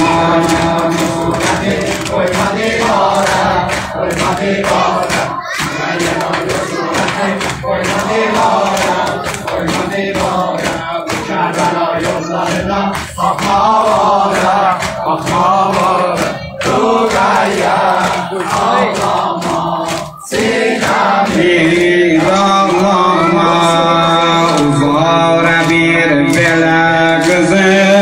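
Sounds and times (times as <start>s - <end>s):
hands slapping chests: 0.0s - 22.0s
group chanting in unison: 0.0s - 28.0s.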